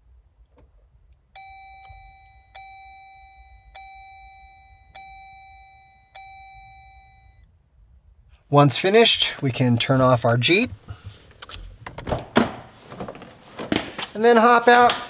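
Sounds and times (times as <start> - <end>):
car warning chime: 1.4 - 7.4.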